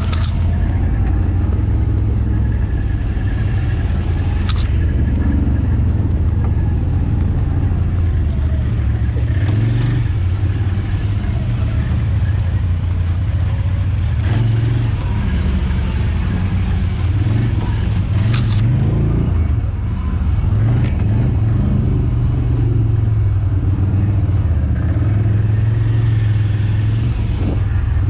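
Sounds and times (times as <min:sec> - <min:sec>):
sharp clicks: 0:00.0 - 0:01.2, 0:04.4 - 0:04.9, 0:18.2 - 0:18.7
quad engine running: 0:00.0 - 0:28.0.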